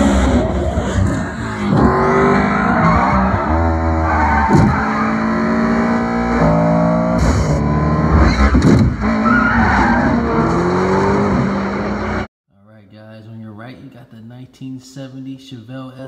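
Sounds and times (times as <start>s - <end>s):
race car engines revving: 0.0s - 12.3s.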